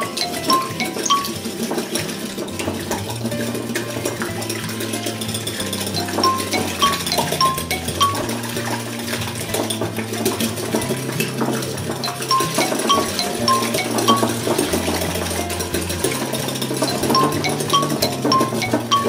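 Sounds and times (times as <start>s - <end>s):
light background music: 0.0s - 19.0s
whisk clicking against glass bowl: 3.8s - 8.5s, 10.8s - 19.0s.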